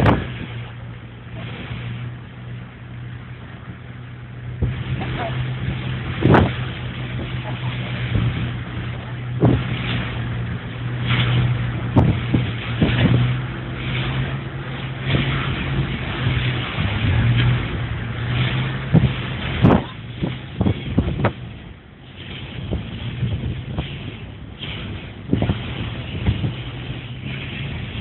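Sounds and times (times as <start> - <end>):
boat engines droning: 0.0 - 28.0
wake water rushing: 0.0 - 28.0.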